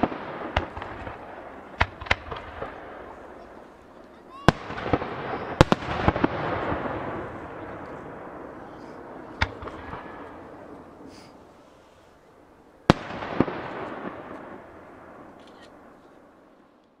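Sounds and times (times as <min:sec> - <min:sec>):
firework shells bursting: 0:00.0 - 0:03.6.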